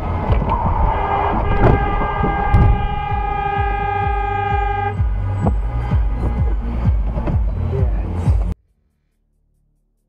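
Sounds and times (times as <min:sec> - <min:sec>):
car driving on wet road: 0:00.0 - 0:08.6
car horn blast: 0:00.8 - 0:07.1.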